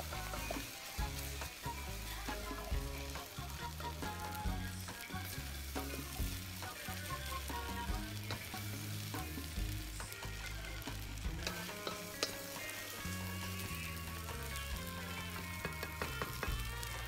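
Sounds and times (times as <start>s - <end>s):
noodles sizzling in a wok: 0.0s - 17.0s
spatula scraping against wok: 5.0s - 16.6s.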